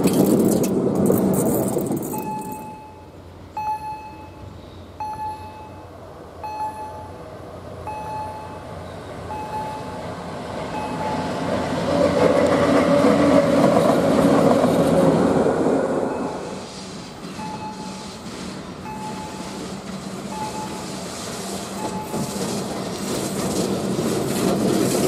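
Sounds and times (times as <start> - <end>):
electric locomotive passing: 0.0 - 25.0
level crossing bell dinging: 2.2 - 7.1, 18.9 - 19.4, 20.3 - 20.8.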